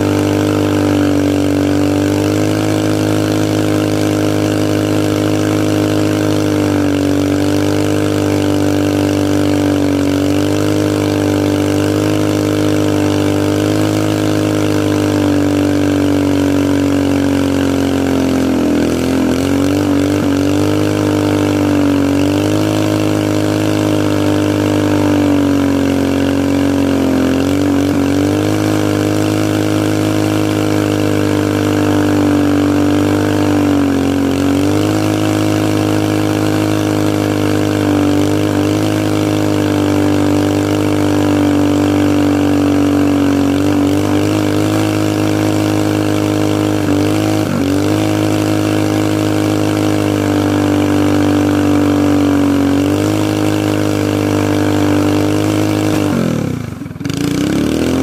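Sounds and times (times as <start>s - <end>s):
mini bike engine revving high: 0.0s - 58.0s.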